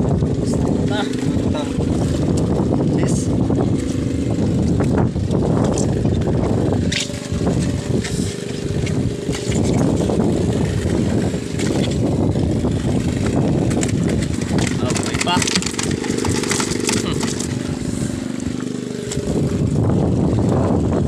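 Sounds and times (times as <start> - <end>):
boat engine rumbling: 0.0 - 21.0.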